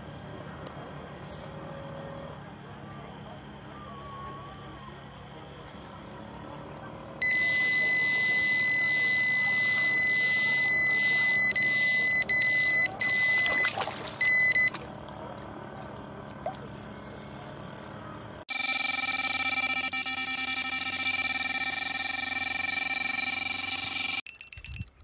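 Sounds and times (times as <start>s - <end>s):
electronic bite alarm beeping: 7.2s - 14.8s, 18.5s - 24.9s.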